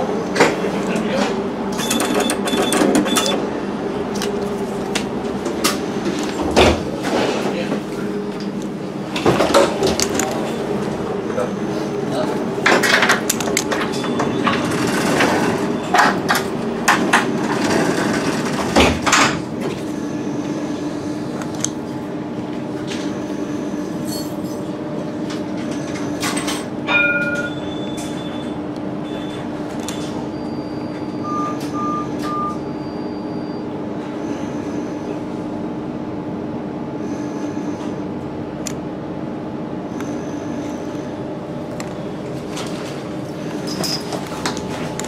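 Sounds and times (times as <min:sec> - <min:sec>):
tram electrical hum: 0:00.0 - 0:45.0.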